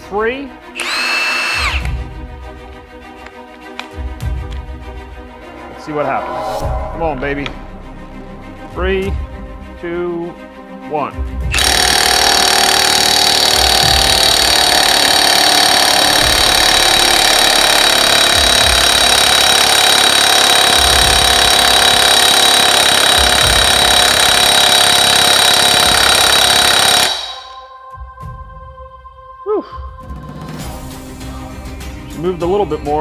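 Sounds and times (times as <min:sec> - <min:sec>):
impact wrench hammering: 0:11.6 - 0:27.7.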